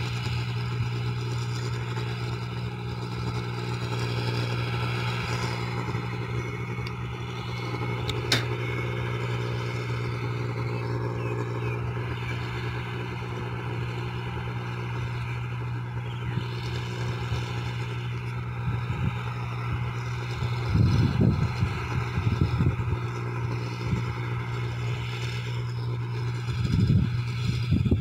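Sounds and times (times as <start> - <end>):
harvester engine droning: 0.0 - 28.0
wind buffeting microphone: 18.5 - 24.7, 26.0 - 28.0.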